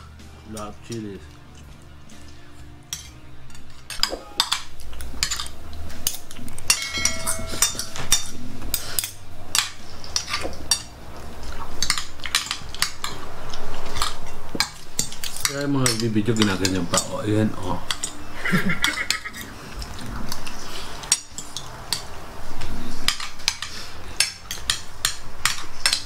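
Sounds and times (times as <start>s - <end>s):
cutlery clinking on a plate: 2.9s - 10.9s, 11.8s - 13.2s, 17.9s - 19.5s, 23.0s - 26.0s.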